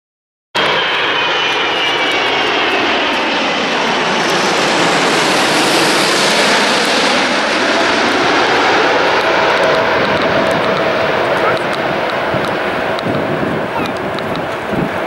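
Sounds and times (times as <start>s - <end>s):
jet airliner passing overhead: 0.6s - 15.0s.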